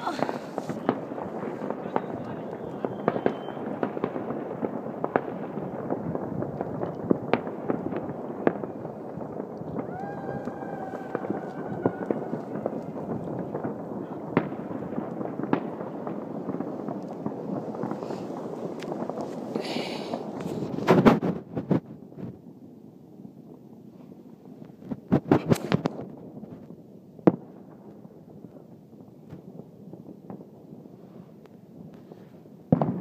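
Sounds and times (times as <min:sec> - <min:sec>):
firecracker bangs: 0:00.0 - 0:21.9
distant fireworks crackling: 0:00.0 - 0:33.0
faint steady whistle: 0:02.3 - 0:03.6.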